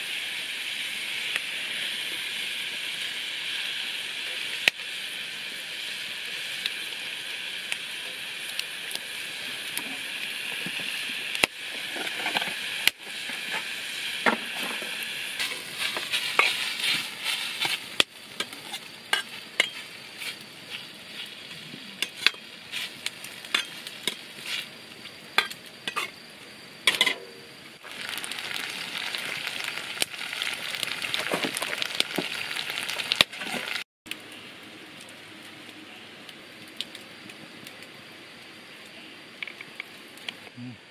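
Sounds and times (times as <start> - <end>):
food sizzling in a wok: 0.0 - 40.8
spatula scraping pan: 14.5 - 17.8.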